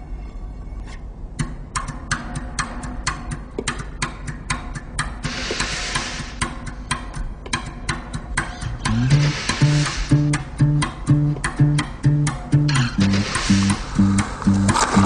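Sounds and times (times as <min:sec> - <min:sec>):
crisp rhythmic clicks: 0:01.2 - 0:15.0
burst of hiss: 0:05.2 - 0:06.5, 0:09.1 - 0:10.2, 0:13.1 - 0:13.9
low steady hum: 0:06.6 - 0:15.0.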